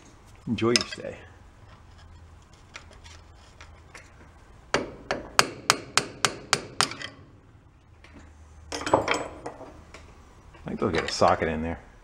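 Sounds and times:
hammer striking metal punch: 0:04.7 - 0:07.2.

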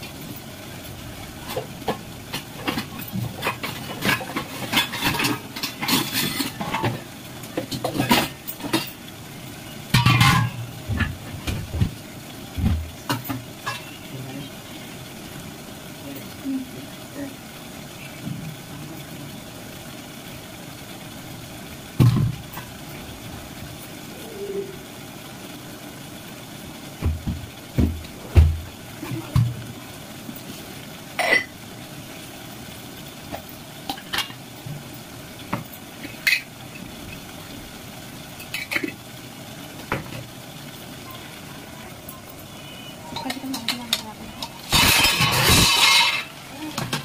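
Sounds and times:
utensils and pots clinking: 0:00.0 - 0:12.0, 0:12.6 - 0:14.8, 0:27.0 - 0:31.7, 0:33.3 - 0:37.3, 0:38.3 - 0:39.1, 0:41.1 - 0:47.0
steady low hiss: 0:00.0 - 0:47.0.

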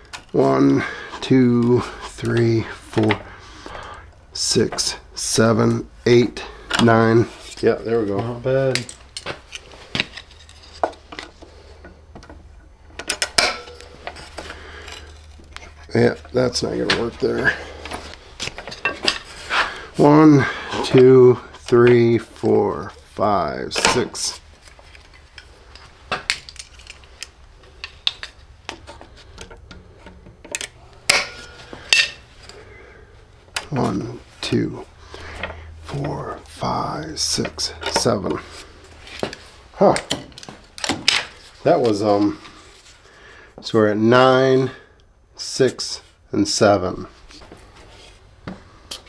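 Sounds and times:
locking pliers clicking and clinking: 0:24.9 - 0:28.4, 0:30.4 - 0:32.2.

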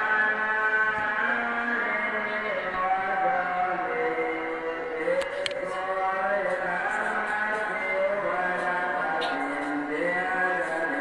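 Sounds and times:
slow sung melody: 0:00.0 - 0:11.0.

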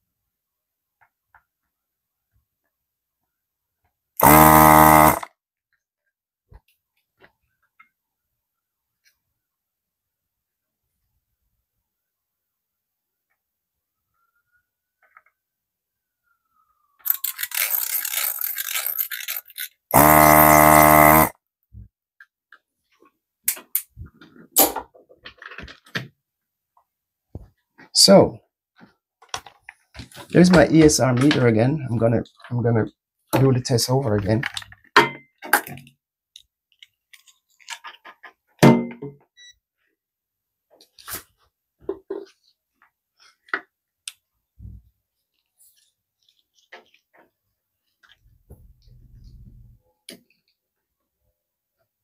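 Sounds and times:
vacuum pump buzzing: 0:04.2 - 0:05.3, 0:19.9 - 0:21.3
parts clicking and knocking: 0:17.0 - 0:21.0.

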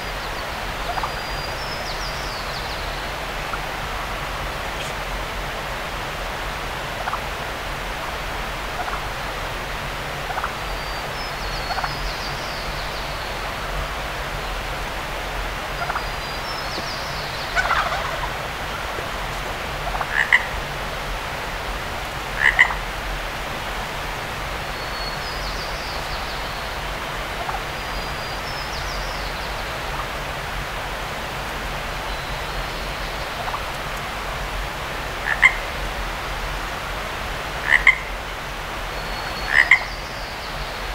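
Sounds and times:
steady hiss: 0:00.0 - 0:40.9
croaking animal calls: 0:04.7 - 0:05.1, 0:16.8 - 0:20.6, 0:22.4 - 0:22.8, 0:35.2 - 0:35.6, 0:37.6 - 0:38.1, 0:39.5 - 0:39.9.

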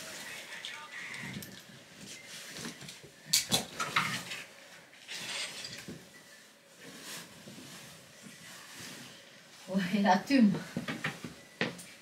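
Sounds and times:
objects clattering: 0:02.6 - 0:06.2.

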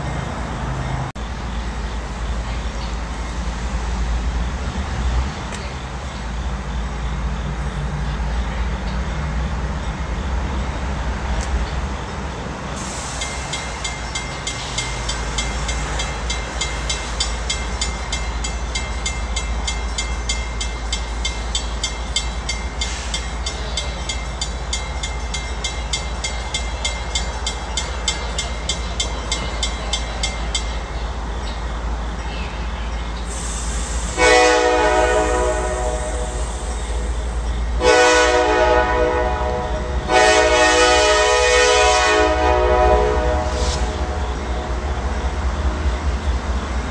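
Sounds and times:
diesel locomotive engine rumble: 0:00.0 - 0:46.9
locomotive air horn: 0:34.1 - 0:36.4, 0:37.8 - 0:44.2.

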